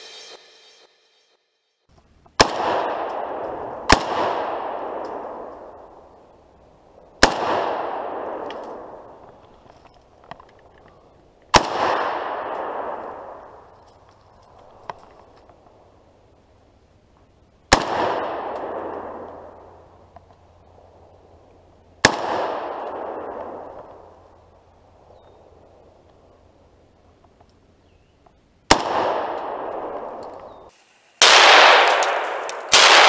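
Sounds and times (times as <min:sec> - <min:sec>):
rifle shots echoing: 0:02.4 - 0:06.2, 0:07.2 - 0:09.3, 0:11.5 - 0:13.8, 0:17.7 - 0:19.8, 0:22.0 - 0:24.3, 0:28.7 - 0:33.0.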